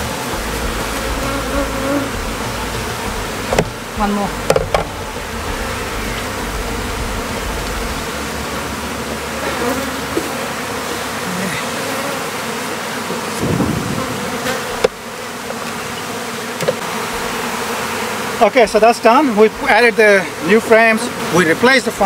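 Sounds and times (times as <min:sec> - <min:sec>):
bees buzzing: 0:00.0 - 0:22.0
light knocks: 0:04.5 - 0:05.0.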